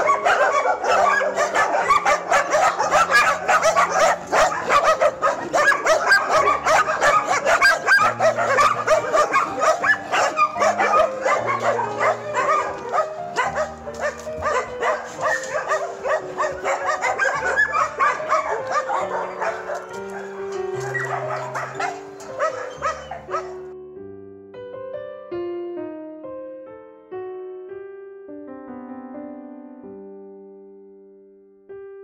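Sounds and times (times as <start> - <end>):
many dogs barking and yelping: 0.0 - 23.7
background music with low notes: 0.0 - 32.0.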